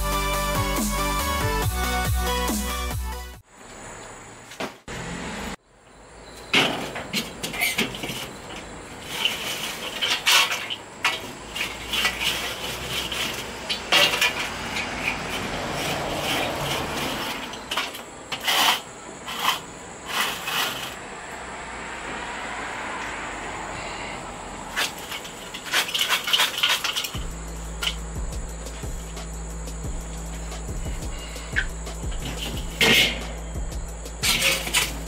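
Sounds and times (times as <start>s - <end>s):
metal clanks and scrapes: 6.4s - 21.0s, 24.7s - 29.4s, 30.0s - 35.0s.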